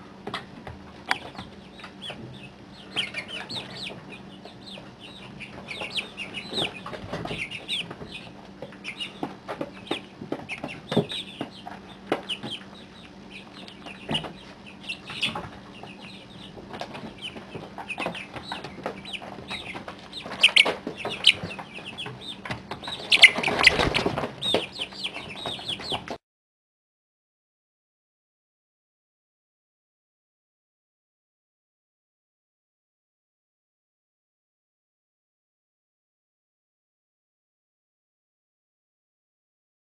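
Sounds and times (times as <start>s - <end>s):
chicks peeping: 0.0s - 26.2s.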